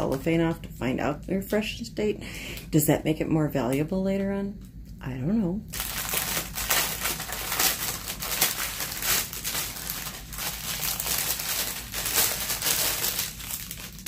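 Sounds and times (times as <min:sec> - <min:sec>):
cellophane wrapper crinkling: 0:05.7 - 0:14.0.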